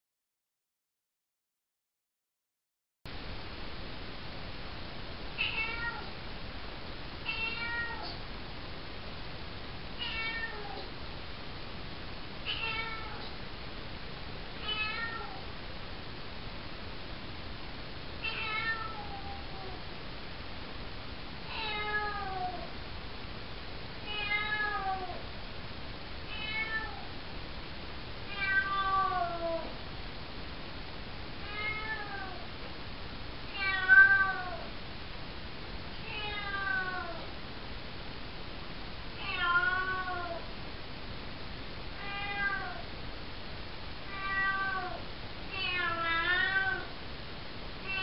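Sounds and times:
kitten meowing: 5.4s - 6.1s, 7.3s - 8.2s, 10.0s - 10.9s, 12.5s - 13.3s, 14.6s - 15.4s, 18.2s - 19.7s, 26.3s - 27.0s, 28.3s - 29.7s, 31.4s - 32.4s, 33.6s - 34.7s, 36.1s - 37.2s, 42.0s - 42.8s, 44.1s - 45.0s, 45.6s - 46.9s.

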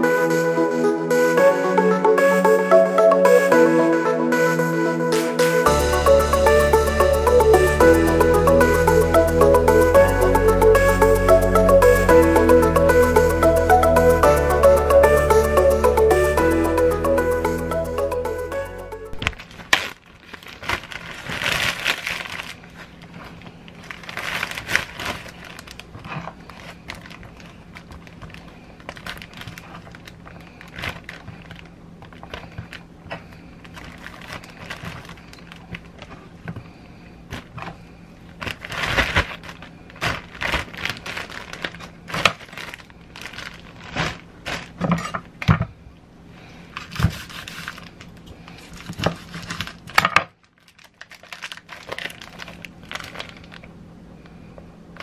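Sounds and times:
packaging crinkling: 19.1s - 36.4s, 37.3s - 45.0s, 46.7s - 53.7s.

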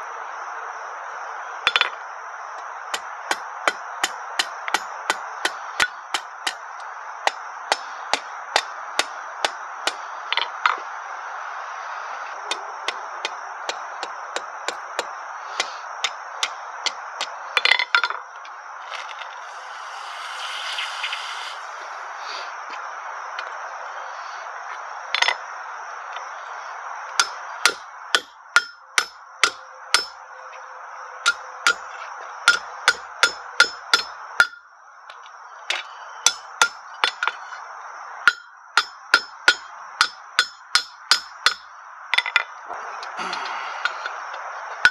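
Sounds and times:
hammer ringing on steel anvil: 27.2s - 30.2s, 36.3s - 36.8s, 38.3s - 41.6s.

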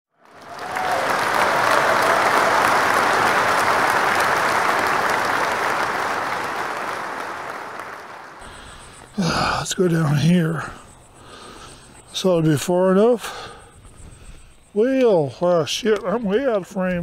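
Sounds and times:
applause from many hands: 0.1s - 8.8s.

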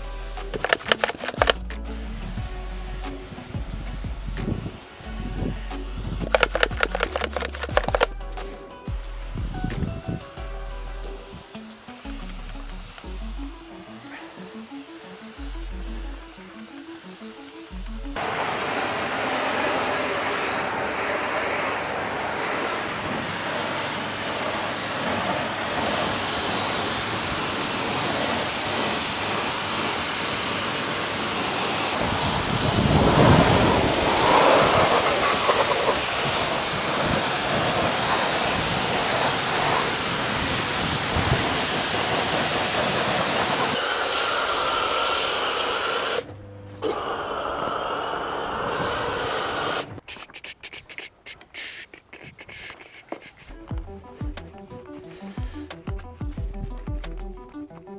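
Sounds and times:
pressure washer spraying water: 0.0s - 56.2s.

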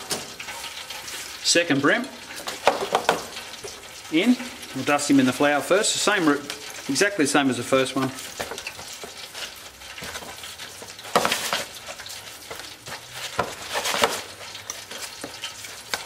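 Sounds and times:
fish rubbing in flour on plastic: 8.2s - 16.0s.

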